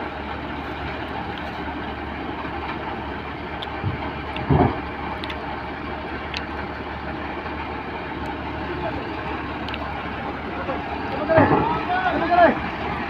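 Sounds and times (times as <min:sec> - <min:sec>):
combine harvester engine running: 0:00.0 - 0:13.0
heavy thump: 0:03.8 - 0:04.8, 0:11.2 - 0:11.8.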